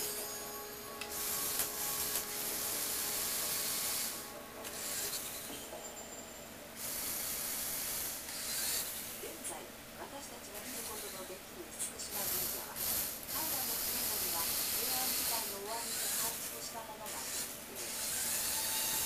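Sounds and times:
toy electric motor whirring: 0.0 - 6.1, 6.8 - 9.3, 10.6 - 11.4, 12.0 - 19.0.

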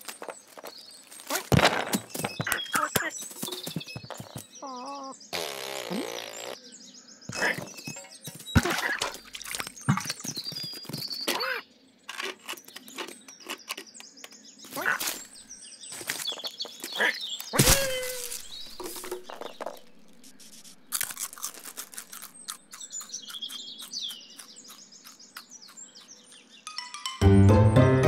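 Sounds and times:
birds chirping: 0.0 - 27.2
jazzy music: 26.9 - 28.0.

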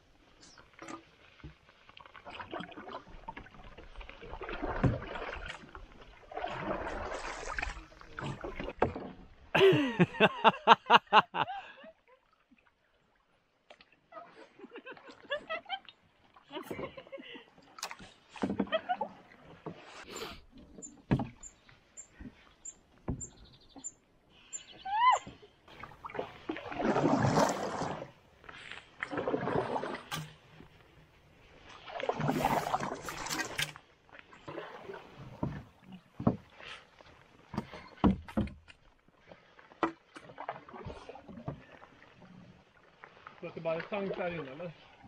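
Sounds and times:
paddles swishing through water: 0.0 - 45.0
paddles knocking against hull: 6.4 - 9.5, 20.6 - 23.9, 34.3 - 41.8.

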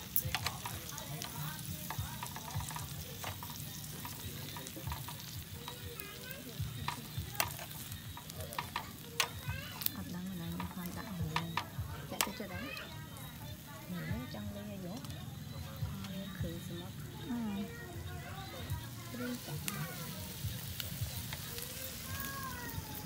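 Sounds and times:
food frying in a pan: 0.0 - 23.0.

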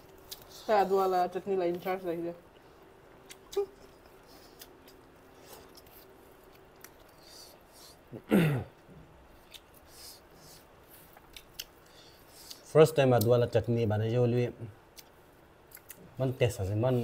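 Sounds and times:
mouth chewing clicks and smacks: 3.2 - 7.4, 9.3 - 9.9, 11.0 - 13.3, 14.9 - 16.1.

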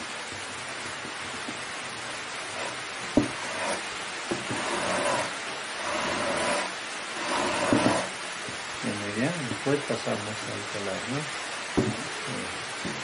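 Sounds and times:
sharp knocks: 3.1 - 3.4, 11.8 - 12.1.

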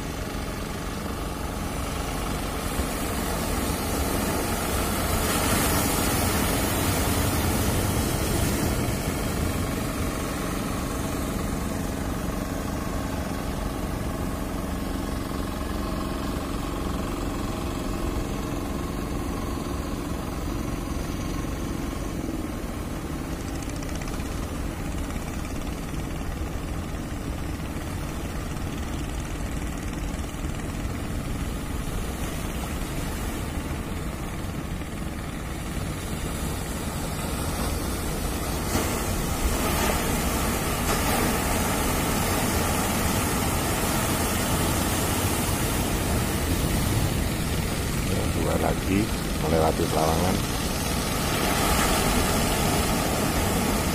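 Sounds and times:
boat engine drone: 0.0 - 53.9
surf washing onto beach: 1.5 - 19.1, 35.2 - 53.9.

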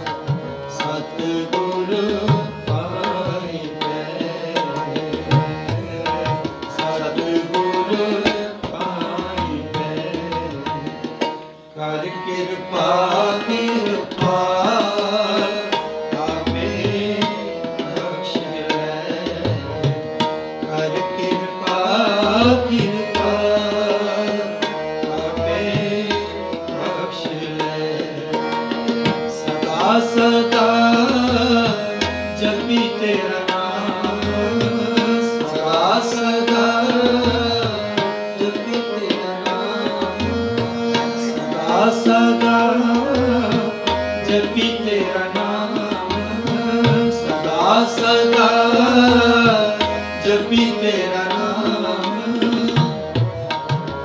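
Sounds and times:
harmonium: 0.0 - 54.0
tabla drumming: 0.0 - 54.0
person singing: 29.6 - 53.0.

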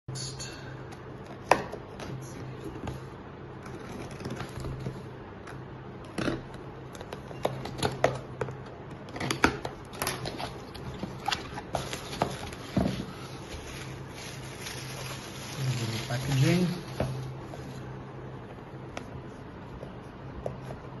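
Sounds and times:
cardboard and plastic rustling: 9.0 - 17.9.

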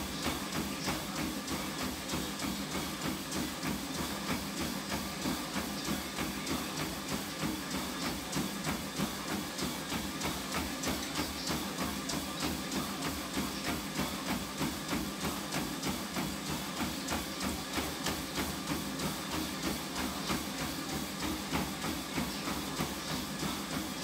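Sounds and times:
running footfalls on treadmill: 0.0 - 24.0
treadmill motor hum: 0.0 - 24.0.

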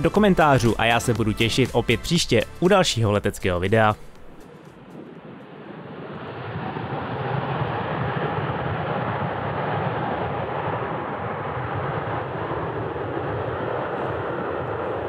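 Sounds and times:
jet engines roaring: 3.0 - 15.0.

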